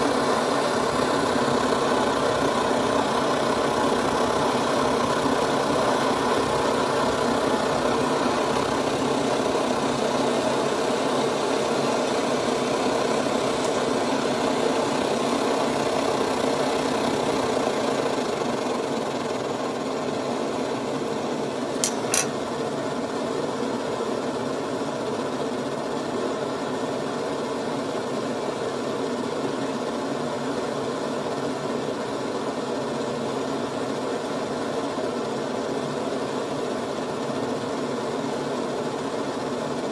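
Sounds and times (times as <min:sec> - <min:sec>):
stove burner rushing: 0:21.6 - 0:22.5.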